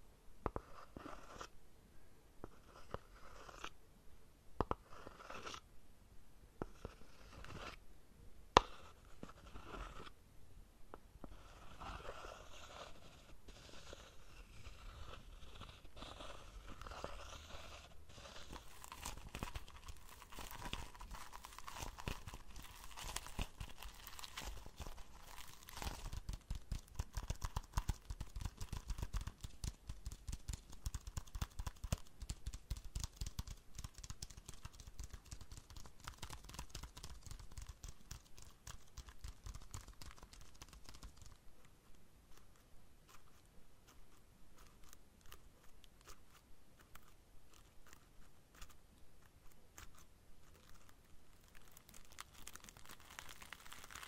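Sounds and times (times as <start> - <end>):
plastic leaves crinkling: 51.3 - 54.0.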